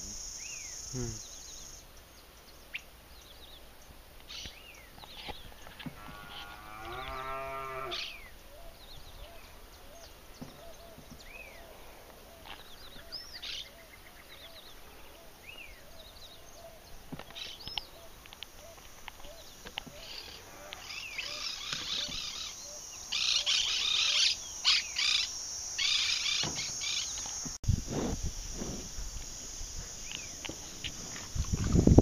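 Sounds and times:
cow mooing: 0:06.0 - 0:08.1.

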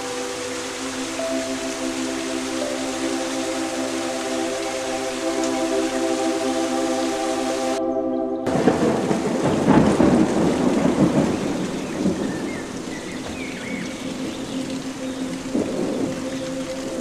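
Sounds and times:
steady rain: 0:00.0 - 0:07.8, 0:08.5 - 0:17.0
rolling rumble of thunder: 0:08.5 - 0:17.0.

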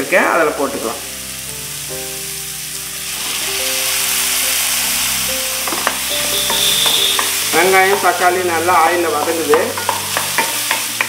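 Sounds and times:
calm background music: 0:00.0 - 0:11.0
vegetables sizzling in hot oil: 0:00.0 - 0:11.0
spatula knocking against pan: 0:09.2 - 0:11.0.

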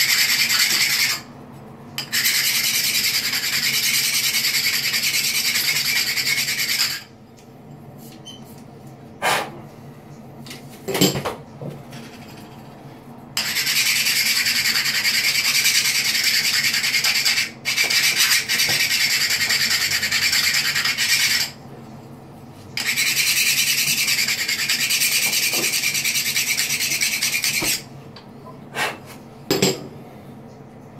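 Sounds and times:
tile filing gritty rasp: 0:00.0 - 0:01.2, 0:02.0 - 0:07.0, 0:13.4 - 0:21.6, 0:22.8 - 0:27.8.

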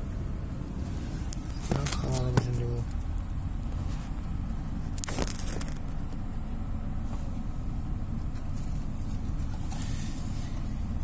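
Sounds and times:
steady low rumble: 0:00.0 - 0:11.0.

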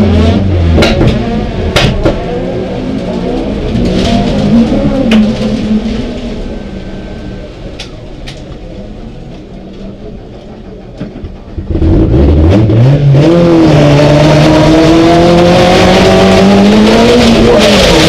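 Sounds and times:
car engine accelerating hard: 0:11.6 - 0:18.0.

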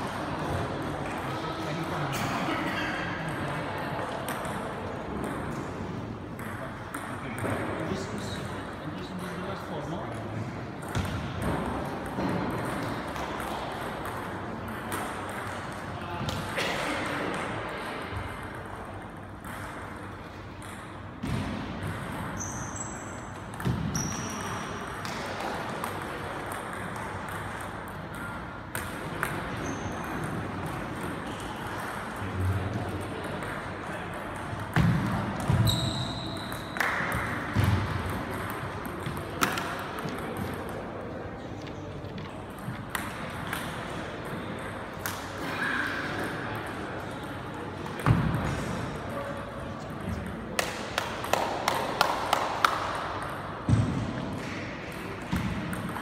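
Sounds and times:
shoes squeaking on floor: 0:23.9 - 0:24.4, 0:35.6 - 0:36.5.

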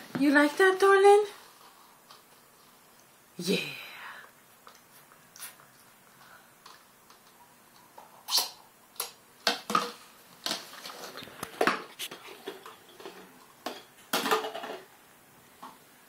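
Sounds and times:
plastic cups clattering on tile floor: 0:09.4 - 0:14.9.

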